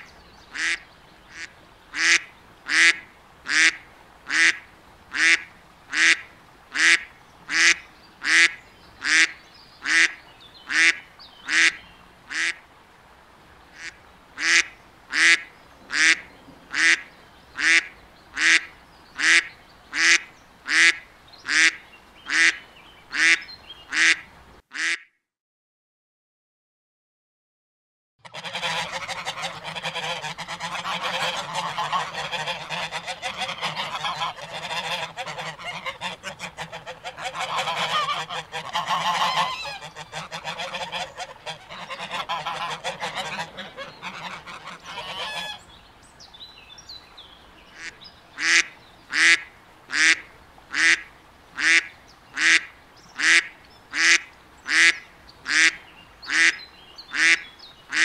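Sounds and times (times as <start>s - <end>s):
duck quacking: 0.5s - 12.6s, 13.8s - 25.1s, 28.2s - 45.6s, 47.8s - 58.0s
ducks chattering: 28.3s - 45.6s, 47.7s - 51.0s, 53.2s - 58.0s.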